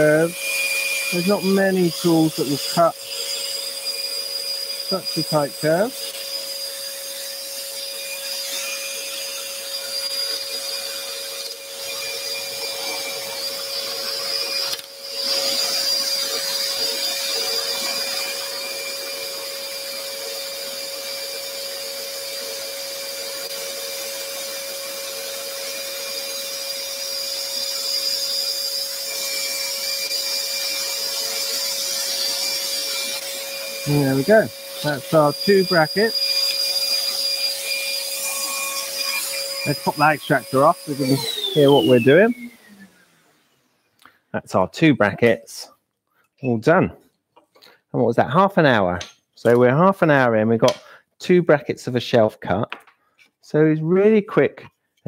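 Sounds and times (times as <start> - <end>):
dust extractor humming: 0.0 - 43.5
scroll saw cutting wood: 0.0 - 43.7.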